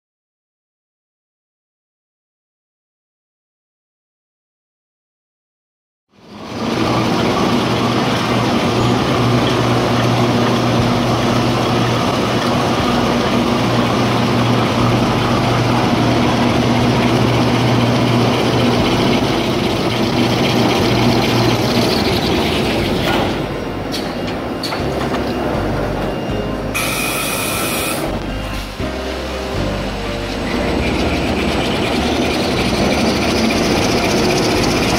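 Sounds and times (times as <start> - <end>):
machine mechanical hum: 6.2 - 34.9
hiss of rollers and paper: 26.8 - 28.2.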